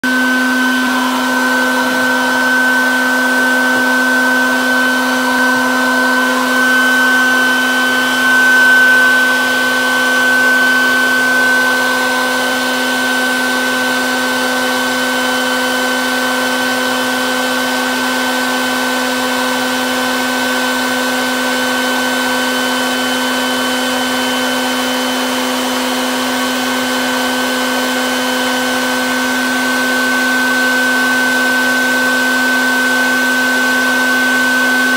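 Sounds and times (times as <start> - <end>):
bee vacuum motor humming: 0.0 - 23.2.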